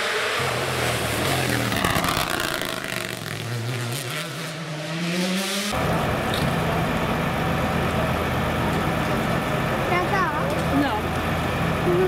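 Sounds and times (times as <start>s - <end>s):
rally car engine accelerating: 0.0s - 12.0s
low engine hum: 5.7s - 12.0s.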